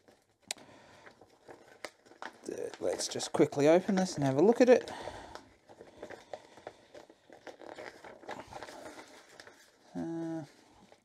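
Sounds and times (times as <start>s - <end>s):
paper crinkling: 0.0s - 11.0s
person humming: 9.9s - 10.6s.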